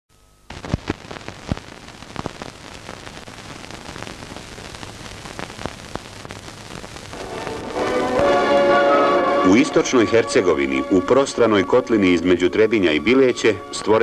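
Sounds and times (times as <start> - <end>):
crackles and pops: 0.1 - 9.0
film soundtrack hiss: 0.1 - 14.0.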